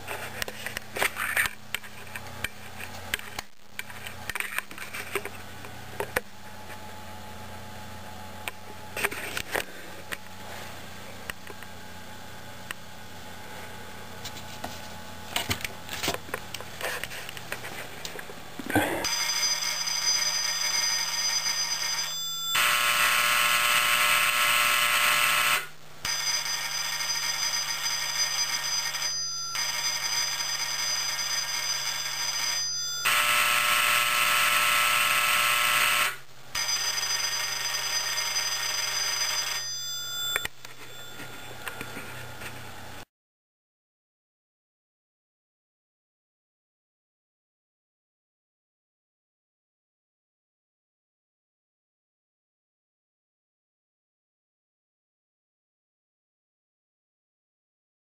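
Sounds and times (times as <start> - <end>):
electric doorbells and buzzers ringing: 19.0 - 42.8.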